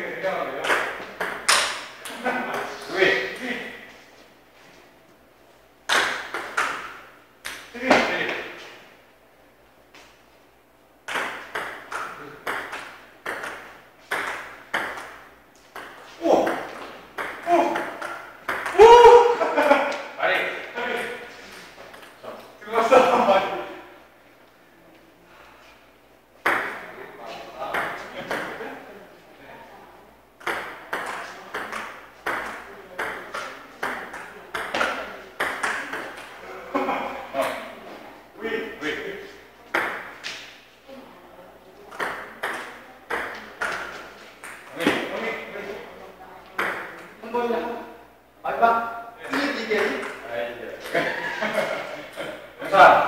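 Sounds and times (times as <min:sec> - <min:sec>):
table tennis ball hits: 0:00.6 - 0:02.7, 0:05.9 - 0:08.4, 0:11.1 - 0:19.1, 0:26.4 - 0:26.9, 0:27.7 - 0:28.6, 0:30.4 - 0:36.3, 0:39.7 - 0:40.5, 0:41.9 - 0:45.1, 0:46.6 - 0:47.0.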